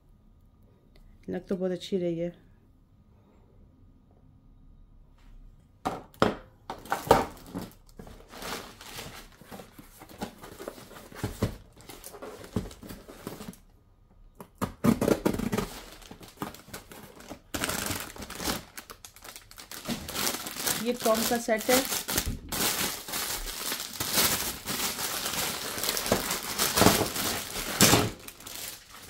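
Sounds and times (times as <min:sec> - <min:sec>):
packaging crinkling and rustling: 0:06.7 - 0:13.8, 0:14.4 - 0:29.0.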